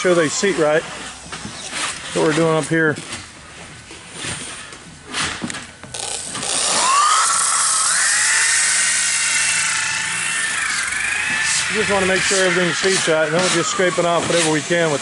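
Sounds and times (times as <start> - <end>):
electric sander motor whine: 6.0 - 14.5.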